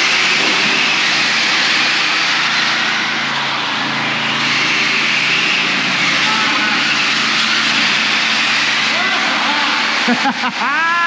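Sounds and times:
rc car electric motors whining: 0.0s - 11.0s.

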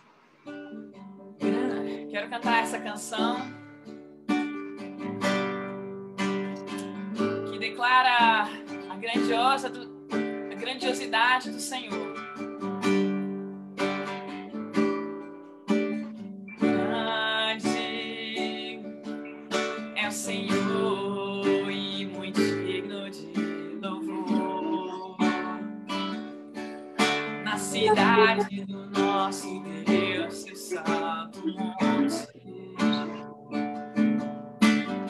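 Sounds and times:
acoustic guitar strumming chords: 0.0s - 35.0s
woman singing: 1.4s - 3.6s, 7.5s - 9.8s, 10.5s - 12.2s, 16.6s - 18.9s, 20.0s - 25.8s, 27.5s - 33.4s.

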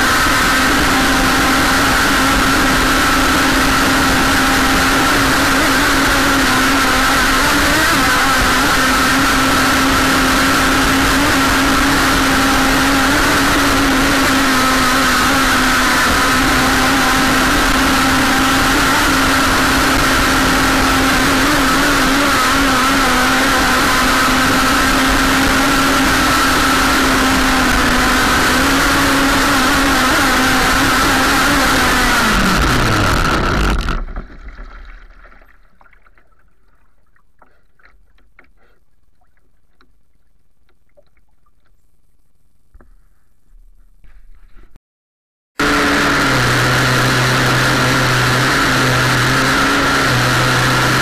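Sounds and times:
model boat motor running: 0.0s - 34.1s, 45.6s - 51.0s
water rushing past hull: 0.0s - 38.0s.

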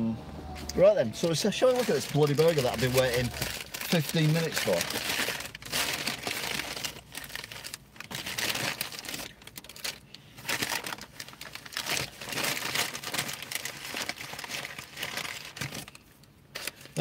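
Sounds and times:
paper bag crinkling and rustling: 0.5s - 17.0s.

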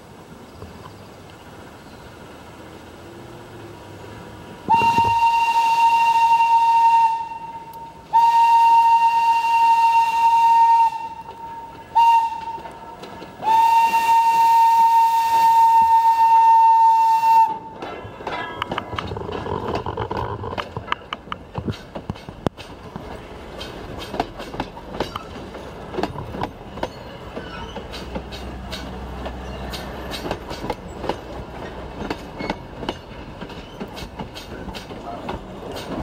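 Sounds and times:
train whistle blasts: 4.7s - 12.8s, 13.4s - 17.7s
train wheels clicking over rail joints: 7.5s - 16.4s, 17.0s - 36.0s.

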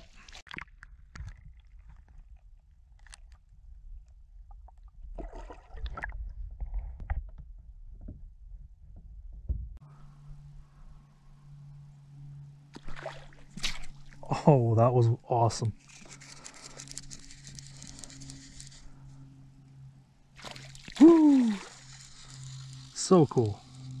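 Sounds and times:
water sloshing and gurgling: 0.0s - 8.1s, 12.6s - 14.4s, 19.8s - 22.9s
water splash: 5.2s - 6.2s, 12.7s - 14.3s, 20.4s - 22.3s
faint low hum: 7.6s - 24.0s.

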